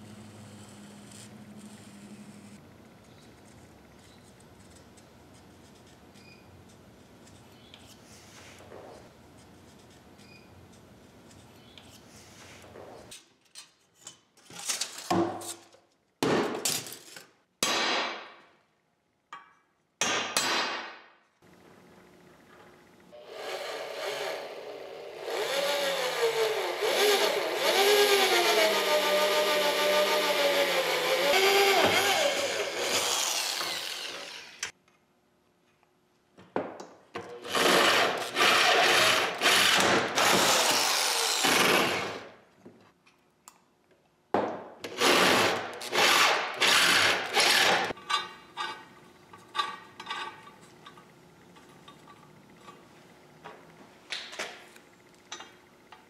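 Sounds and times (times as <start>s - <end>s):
electric drill boring steel: 23.2s - 34.7s, 37.4s - 42.2s, 45.0s - 48.0s.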